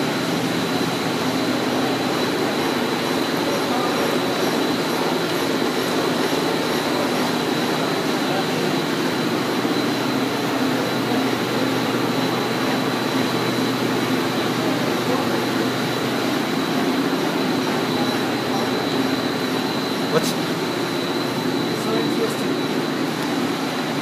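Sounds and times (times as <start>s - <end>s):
machinery rumble and hiss: 0.0s - 24.0s
steady high whine: 0.0s - 24.0s.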